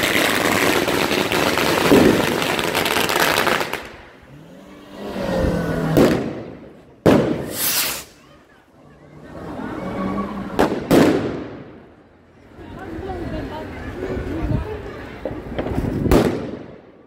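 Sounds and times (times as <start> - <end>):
sharp firecracker bangs: 0.0 - 4.0, 5.9 - 8.2, 10.6 - 11.8, 15.3 - 16.8
firecrackers crackling: 0.0 - 4.5, 5.8 - 8.7, 10.4 - 12.1, 13.4 - 17.0
car engine revving past: 4.1 - 6.6.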